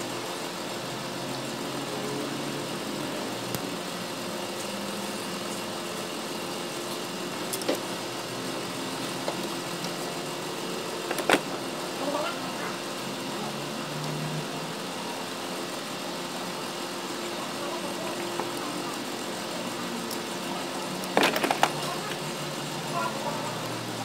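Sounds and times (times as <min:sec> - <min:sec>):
steady mechanical hum: 0:00.0 - 0:24.0
clicks and knocks of hoses: 0:11.0 - 0:11.6, 0:21.0 - 0:22.2.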